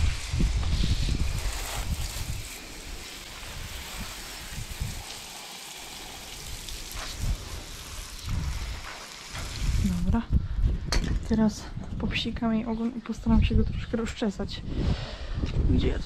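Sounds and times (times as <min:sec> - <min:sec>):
hose spraying water: 0:00.0 - 0:10.2.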